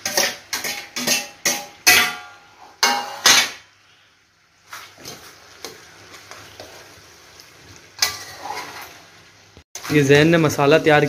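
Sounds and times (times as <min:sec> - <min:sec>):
metal spoon clanking on pot: 0:00.0 - 0:03.6, 0:08.0 - 0:08.7.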